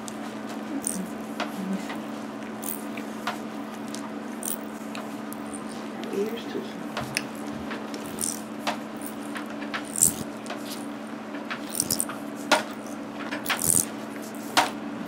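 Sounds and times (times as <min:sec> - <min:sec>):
machine humming: 0:00.0 - 0:15.0.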